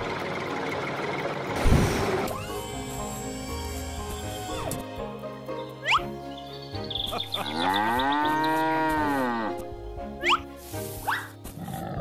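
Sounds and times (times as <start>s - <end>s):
cheerful background music: 0.0s - 12.0s
rising cartoon whistle effects: 5.8s - 6.1s
cow mooing: 7.4s - 9.6s.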